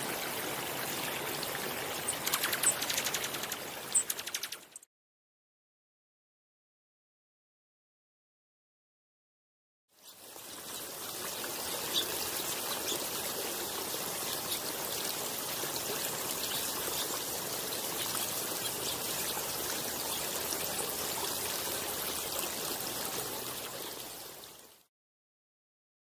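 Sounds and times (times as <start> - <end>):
water trickling over stones: 0.0 - 4.8, 9.9 - 24.9.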